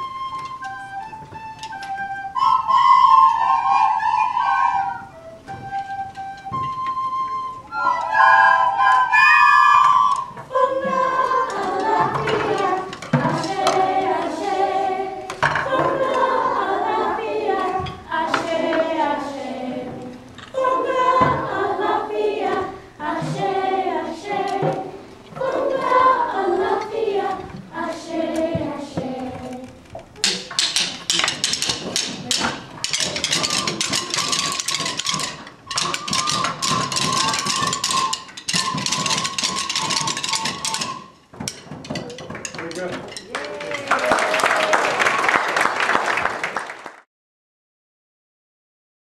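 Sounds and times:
many sticks tapping: 9.8 - 14.7, 29.4 - 44.1
group singing: 9.8 - 29.8.

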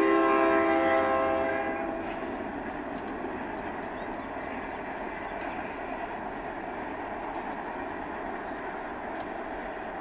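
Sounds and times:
locomotive horn: 0.0 - 2.0
freight train cars rolling: 0.0 - 10.0.

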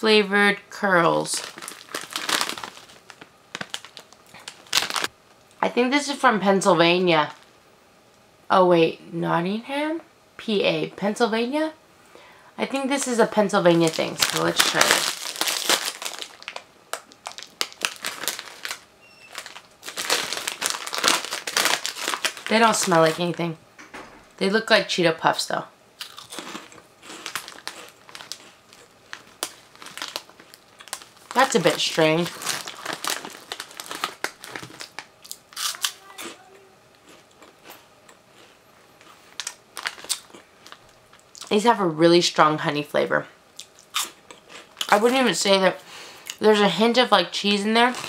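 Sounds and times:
cheese curls crunching: 1.1 - 5.1, 13.1 - 23.4, 26.0 - 36.4, 37.0 - 41.5
plastic snack bag crinkling: 1.2 - 5.1, 13.0 - 23.4, 26.0 - 36.4, 38.4 - 41.5, 47.8 - 48.0.

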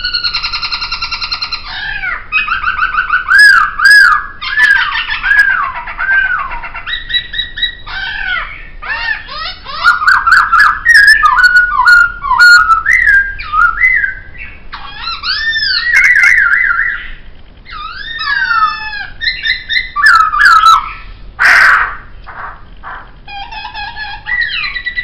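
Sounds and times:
bird singing whistled phrases: 0.0 - 21.1.

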